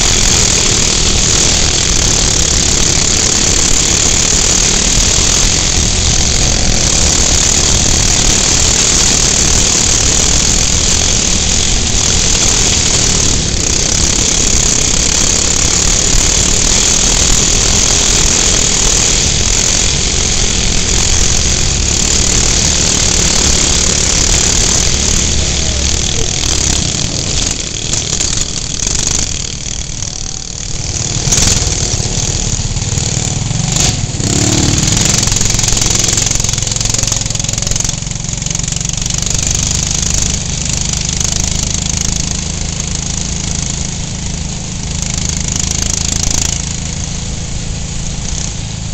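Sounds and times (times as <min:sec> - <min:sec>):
steady high hiss: 0:00.0 - 0:38.8
kart engine running hard: 0:00.0 - 0:48.9.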